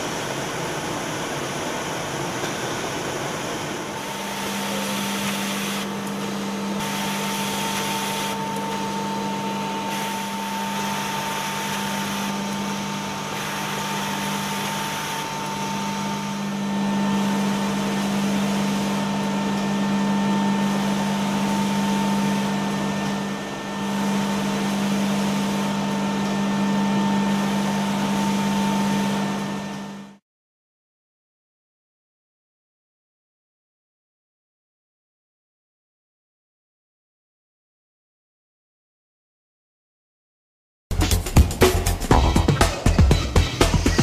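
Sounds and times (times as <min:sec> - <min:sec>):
machine motor hum and whine: 0:00.0 - 0:30.2.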